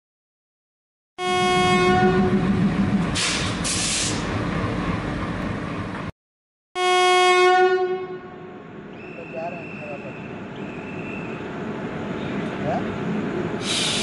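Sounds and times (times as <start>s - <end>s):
train horn: 1.2s - 2.5s, 6.8s - 8.6s
burst of hiss: 13.6s - 14.0s.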